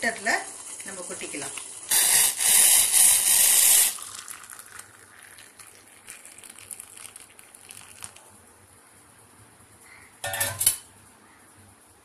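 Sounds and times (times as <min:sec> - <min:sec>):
water pouring and splashing: 0:04.0 - 0:08.2.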